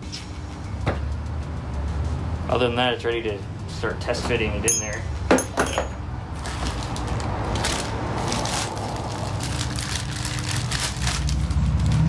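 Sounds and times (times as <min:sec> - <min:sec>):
plastic bag crinkling: 0:06.4 - 0:12.0.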